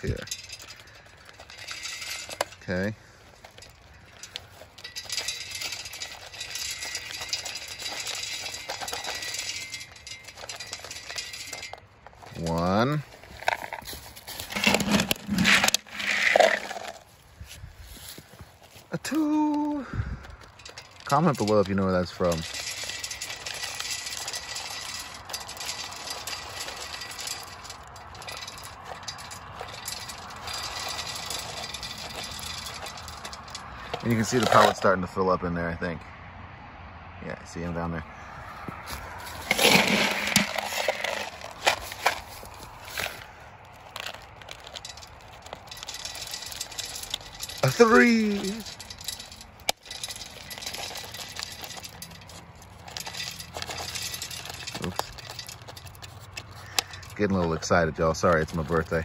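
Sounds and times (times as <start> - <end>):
pellets rattling against metal: 0.0 - 35.3, 38.8 - 59.0.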